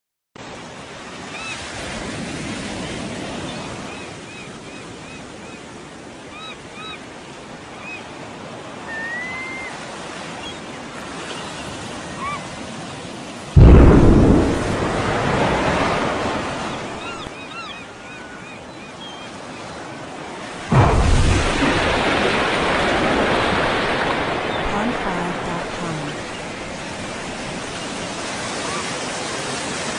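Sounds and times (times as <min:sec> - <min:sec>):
surf washing on shore: 0:00.4 - 0:29.9
loud explosion boom: 0:13.6 - 0:17.3, 0:20.7 - 0:25.8.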